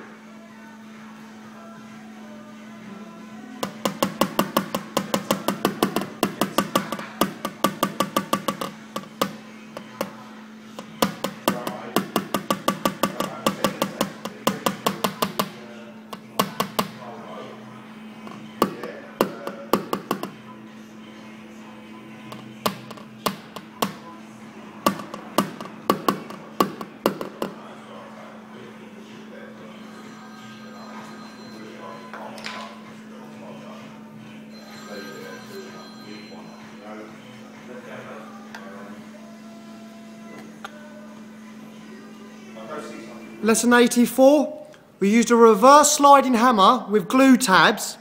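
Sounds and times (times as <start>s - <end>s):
hammer tapping on sheet metal: 3.6s - 10.2s, 10.8s - 17.0s, 18.2s - 20.4s, 22.3s - 24.1s, 24.8s - 27.7s.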